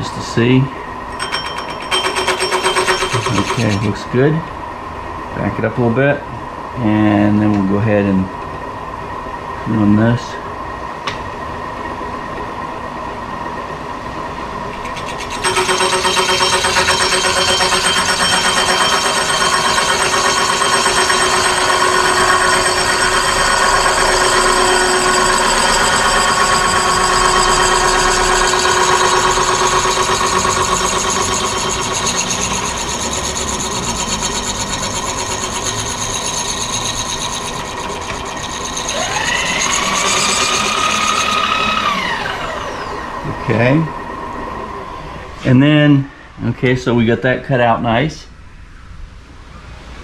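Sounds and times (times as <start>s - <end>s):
milling machine whine: 1.0s - 4.5s, 14.5s - 45.4s.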